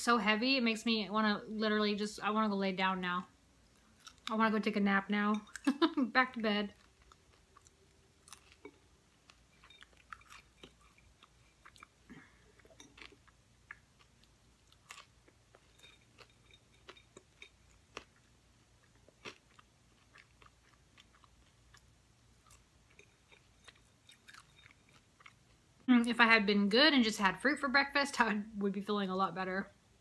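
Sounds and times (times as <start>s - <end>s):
person chewing: 3.7s - 4.3s, 6.8s - 25.7s.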